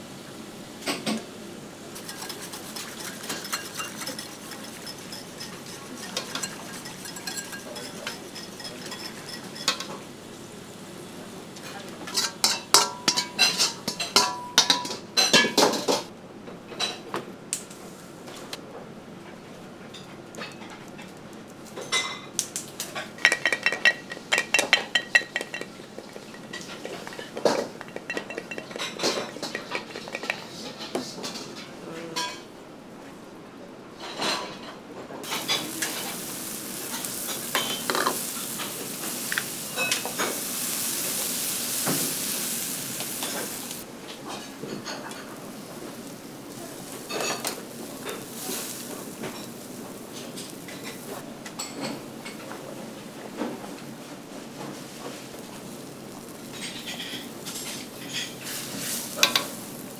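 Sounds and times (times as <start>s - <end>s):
broth bubbling in a wok: 1.7s - 10.2s, 23.2s - 30.6s, 35.2s - 51.2s, 54.7s - 59.9s
metal utensils clinking on bowls: 2.0s - 10.0s, 12.1s - 16.0s, 23.0s - 30.9s, 35.2s - 40.7s, 46.8s - 52.4s, 56.6s - 59.6s.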